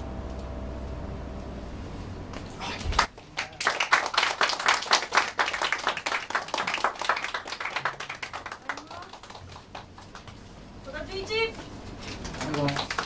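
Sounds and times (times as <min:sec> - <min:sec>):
audience applauding: 0:02.9 - 0:10.4, 0:12.2 - 0:13.0.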